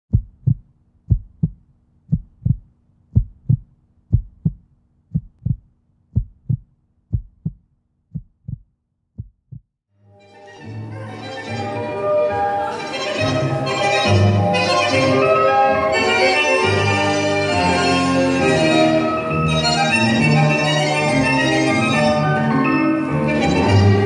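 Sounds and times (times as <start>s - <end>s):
heartbeat thumps: 0.1s - 9.8s
music: 9.9s - 24.0s.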